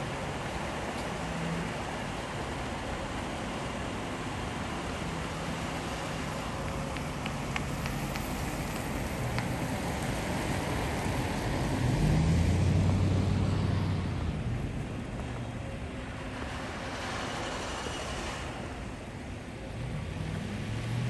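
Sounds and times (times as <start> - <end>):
tyres hissing on wet road: 0.0 - 21.0
vehicle engine passing: 10.4 - 14.8, 19.8 - 21.0.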